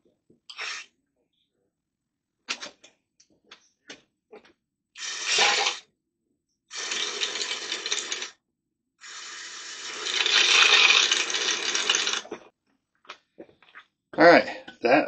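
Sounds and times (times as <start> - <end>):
water hissing through a valve: 5.0 - 5.8, 6.7 - 8.3, 9.0 - 12.3.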